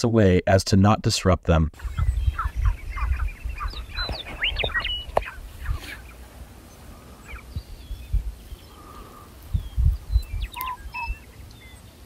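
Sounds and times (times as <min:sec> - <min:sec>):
grouse calling: 0:01.8 - 0:09.6, 0:10.2 - 0:11.6
wind rumble on microphone: 0:01.8 - 0:11.8.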